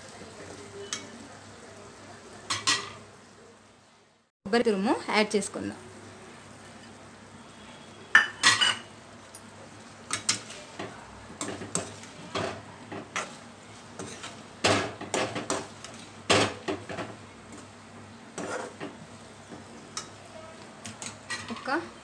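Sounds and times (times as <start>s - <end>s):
metal spatula scraping metal pan: 18.4s - 18.8s.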